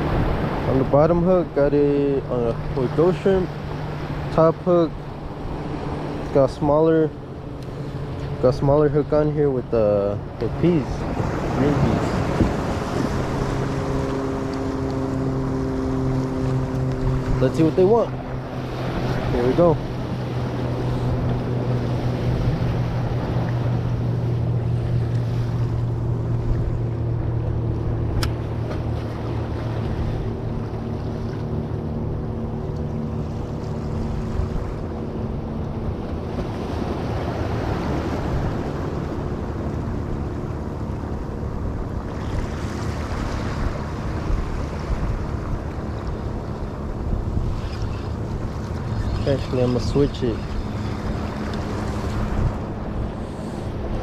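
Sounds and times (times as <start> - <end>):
low engine drone: 0.0 - 54.0
wind on microphone: 10.3 - 28.6, 29.2 - 54.0.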